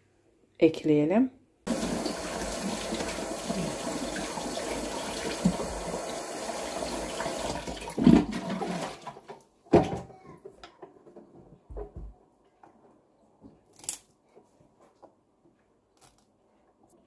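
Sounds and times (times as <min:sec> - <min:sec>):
kitchen tap running: 0:01.7 - 0:09.1
knocks and handling sounds: 0:09.3 - 0:17.0.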